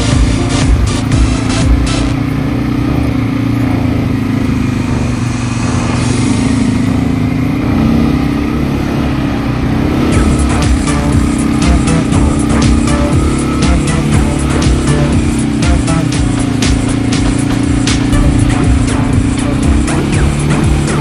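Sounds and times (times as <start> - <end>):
music with regular beat: 0.0 - 3.2, 10.0 - 21.0
quad bike engines running: 0.0 - 21.0.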